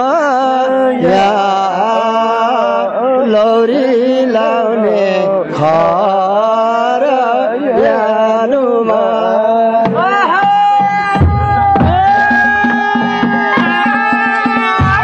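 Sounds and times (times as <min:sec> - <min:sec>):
person singing folk song: 0:00.0 - 0:15.0.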